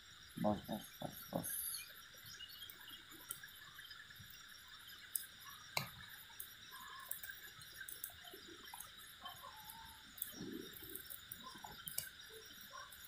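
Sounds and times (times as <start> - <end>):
high insect hum: 0.0 - 13.0
sharp clicks and ticks: 4.9 - 13.0.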